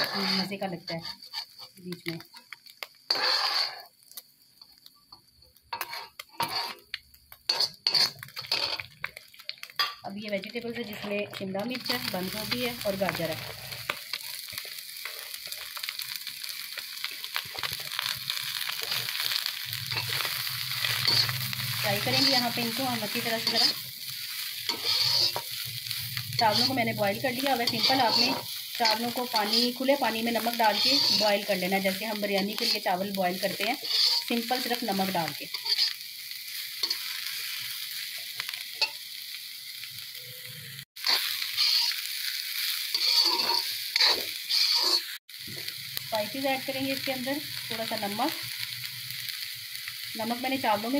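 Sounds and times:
steel spatula scraping a pan: 0.0s - 1.8s, 3.1s - 4.0s, 5.7s - 8.9s, 17.6s - 37.7s, 41.0s - 45.2s
vegetables sizzling in hot oil: 0.0s - 50.9s.

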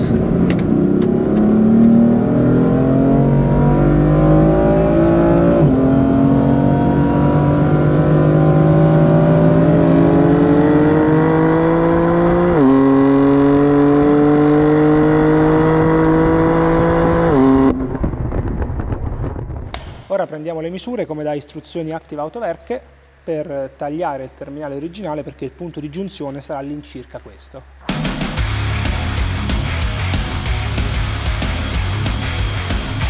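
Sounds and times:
car engine accelerating: 0.0s - 19.3s, 28.1s - 33.0s.

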